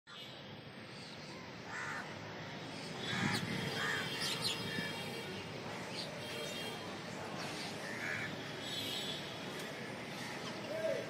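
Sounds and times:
steady background noise: 0:00.1 - 0:11.0
crows cawing: 0:01.7 - 0:02.1, 0:03.0 - 0:04.3, 0:07.8 - 0:08.3.

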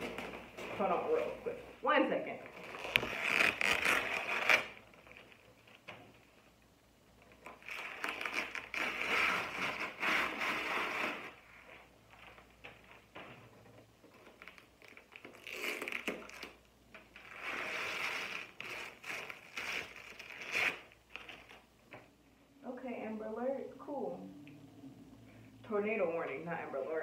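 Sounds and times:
plastic film crinkling: 0:02.5 - 0:05.9, 0:07.3 - 0:13.0, 0:14.0 - 0:21.6.

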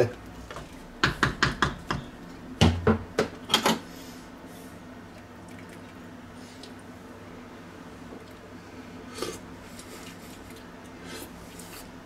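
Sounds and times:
faint steady hum: 0:00.0 - 0:12.0
wooden spoon knocking pot: 0:01.0 - 0:03.3.

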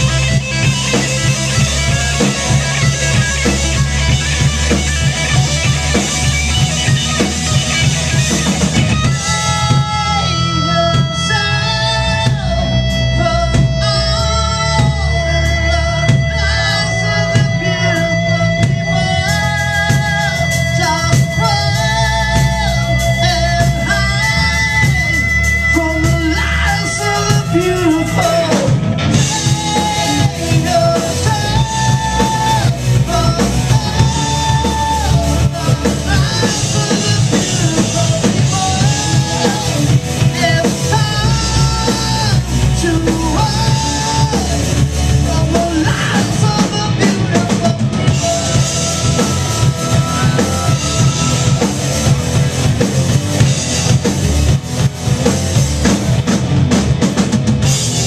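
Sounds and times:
drum beat: 0:00.0 - 0:10.1, 0:27.3 - 0:58.0
lead singer vocals: 0:00.0 - 0:54.0
electric guitars: 0:00.0 - 0:58.0
rock band playing live: 0:00.0 - 0:58.0.

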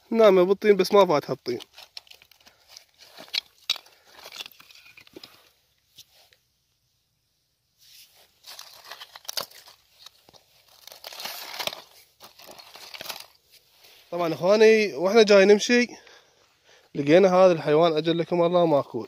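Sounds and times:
dry mud crunching and crumbling: 0:00.1 - 0:05.6, 0:08.1 - 0:14.5.

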